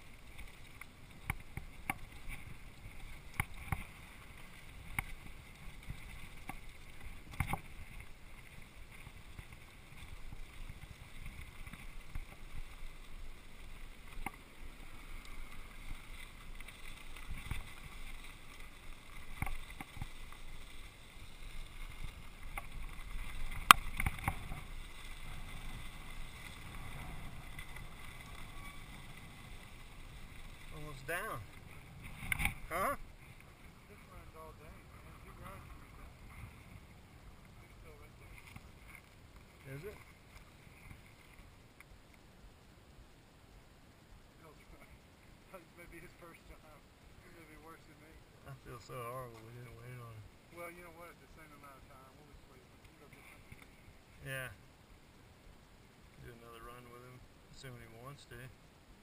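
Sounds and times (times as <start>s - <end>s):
bike tyre and wind rush: 0.0s - 41.9s.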